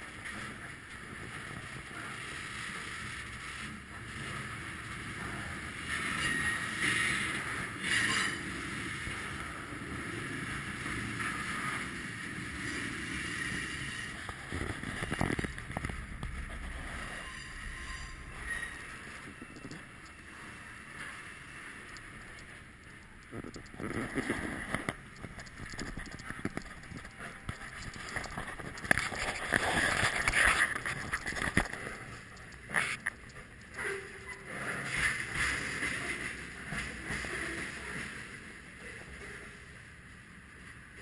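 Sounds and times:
high metallic squeal: 16.7 - 20.5.

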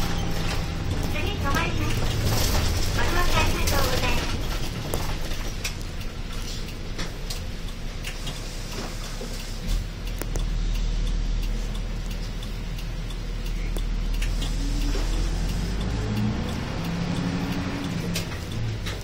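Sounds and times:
bus diesel engine rumbling: 0.0 - 19.0.

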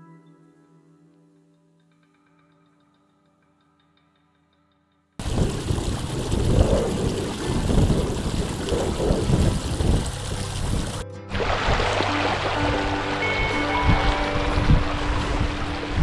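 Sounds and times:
wind buffeting microphone: 5.2 - 11.0, 11.6 - 16.0
shallow rocky stream: 5.2 - 16.0.

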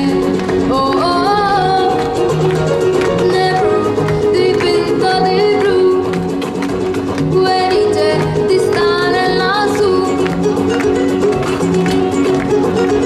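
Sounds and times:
girl singing into a microphone: 0.0 - 2.0, 3.2 - 6.1, 7.3 - 10.2
flamenco rumba backing track: 0.0 - 13.0.

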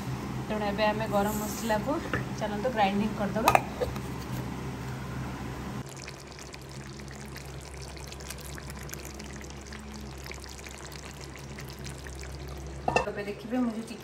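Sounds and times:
curry bubbling and spattering: 5.8 - 12.8.

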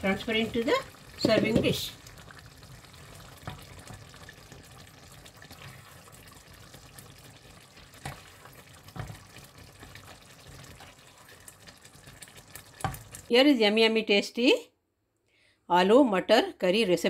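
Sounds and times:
wet scooping of thick gravy: 2.0 - 13.3.

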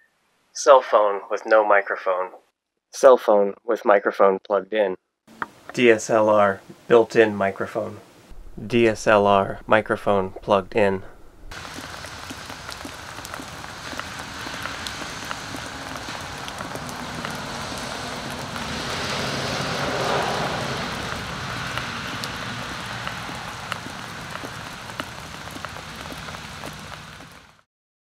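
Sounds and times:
light rain pattering: 8.3 - 27.6
water dripping: 8.4 - 27.6
car passing: 10.7 - 27.6.

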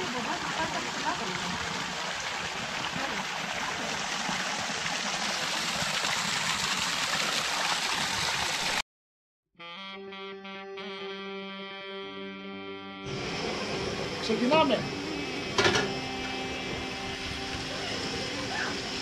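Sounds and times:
running water: 0.0 - 8.8, 13.2 - 19.0
music with held notes: 9.6 - 13.2.

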